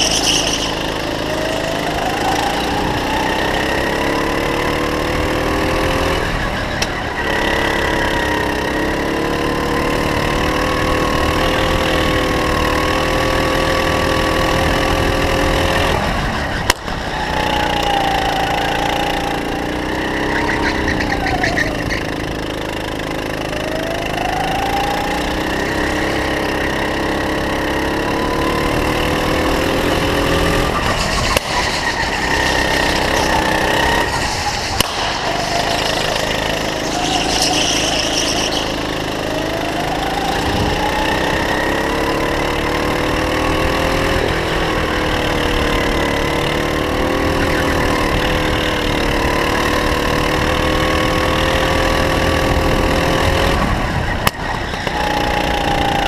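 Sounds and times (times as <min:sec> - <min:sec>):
kart engine running: 0:00.0 - 0:56.0.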